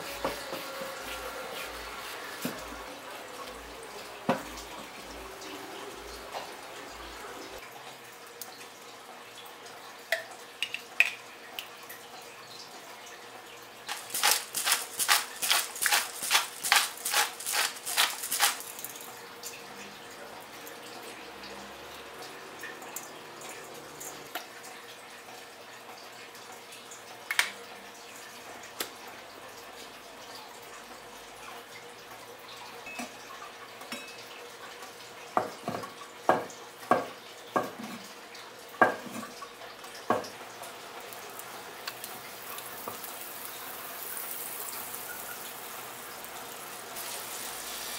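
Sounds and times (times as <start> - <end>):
pepper mill grinding: 13.9 - 19.1.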